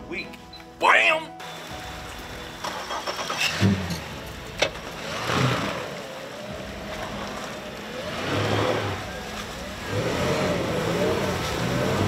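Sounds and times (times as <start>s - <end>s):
engine running and revving: 2.4s - 12.0s.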